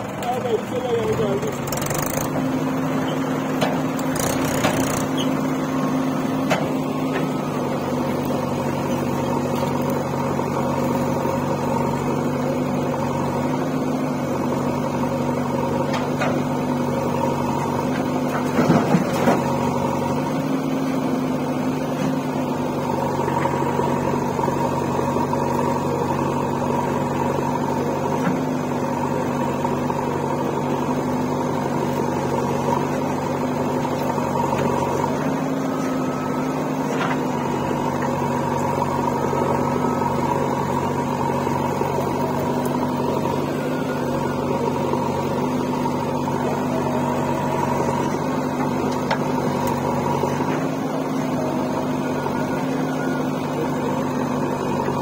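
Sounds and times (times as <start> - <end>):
diesel engines droning: 0.0 - 55.0.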